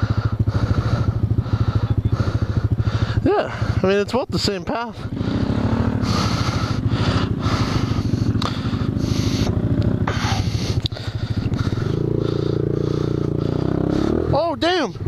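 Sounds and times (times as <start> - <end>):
motorcycle engine under throttle: 0.0 - 15.0.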